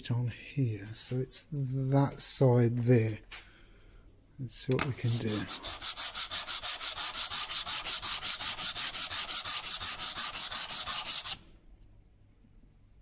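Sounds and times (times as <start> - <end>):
wood block rasping on sandpaper: 4.8 - 11.4.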